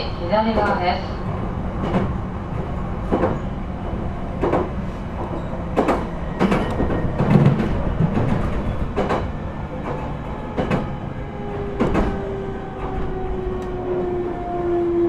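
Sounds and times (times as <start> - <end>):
train wheels rumbling: 0.0 - 15.0.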